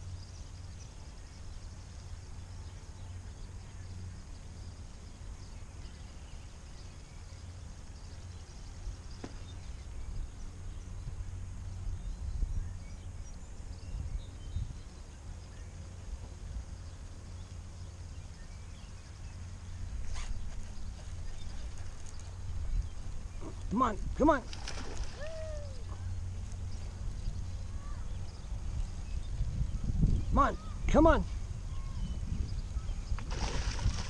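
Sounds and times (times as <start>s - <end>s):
wind rumble on microphone: 8.0s - 34.0s
faint bird chirps: 24.8s - 33.2s.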